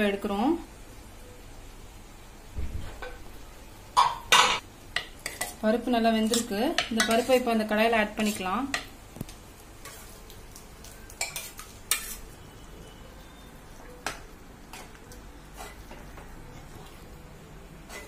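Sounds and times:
spoon clinking and scraping pot: 0:06.2 - 0:07.5, 0:11.1 - 0:12.4.

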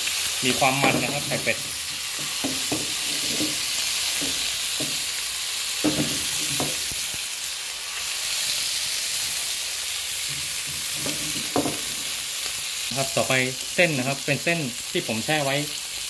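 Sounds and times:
food frying sizzle: 0:00.0 - 0:16.0
spatula knocking against pan: 0:00.8 - 0:03.6, 0:04.2 - 0:05.0, 0:05.8 - 0:06.9, 0:11.0 - 0:11.9.

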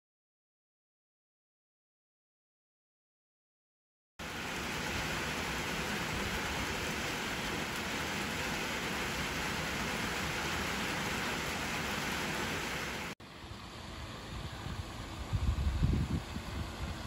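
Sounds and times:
rain on wet pavement: 0:04.2 - 0:13.2.

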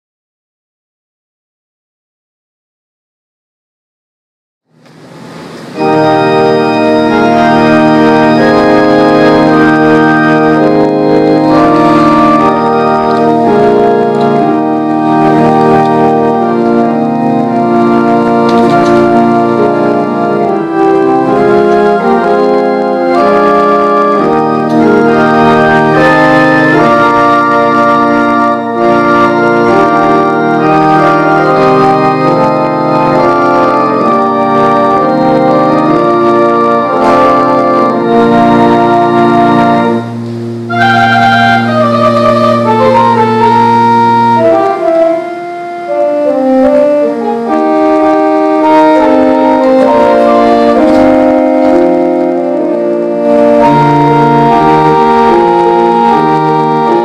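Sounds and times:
church organ chords: 0:04.8 - 0:57.0.

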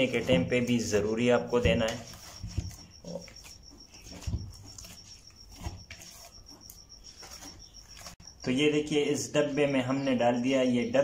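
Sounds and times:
hands kneading dough: 0:00.0 - 0:08.2.

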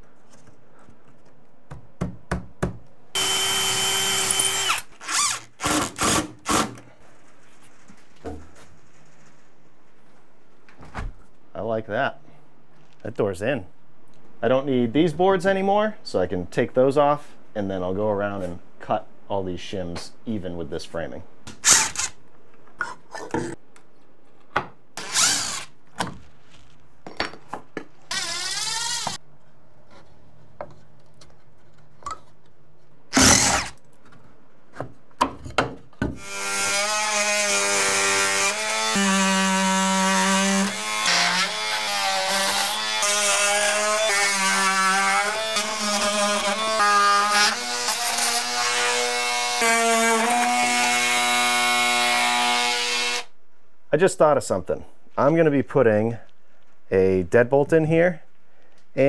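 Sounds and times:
oscillating multi-tool cutting wood: 0:03.2 - 0:06.7, 0:25.0 - 0:25.7, 0:28.1 - 0:29.2, 0:33.1 - 0:33.8, 0:36.2 - 0:53.3
cordless drill driving screws: 0:03.2 - 0:06.8, 0:21.6 - 0:22.2, 0:25.0 - 0:25.7, 0:28.1 - 0:29.2, 0:33.1 - 0:33.8.

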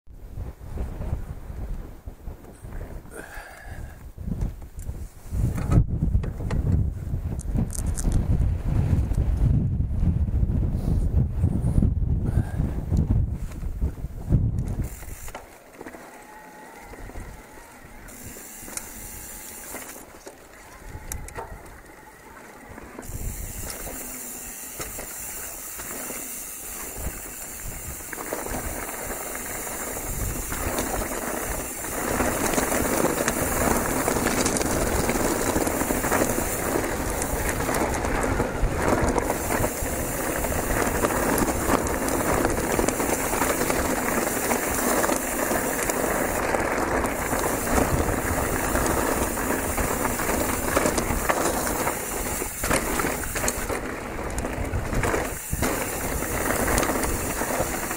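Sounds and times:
wind rushing on microphone: 0:00.1 - 0:15.4, 0:16.3 - 0:57.9
bike rattling: 0:02.3 - 0:10.7, 0:12.3 - 0:57.9
bike tyres rumbling over stones: 0:12.3 - 0:57.9.

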